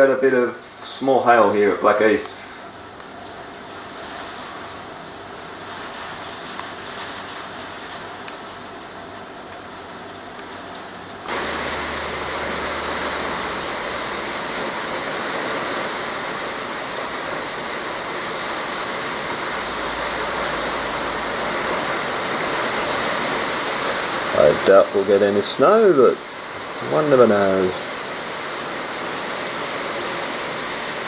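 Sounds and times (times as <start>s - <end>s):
hail hitting the ground: 5.5s - 31.0s.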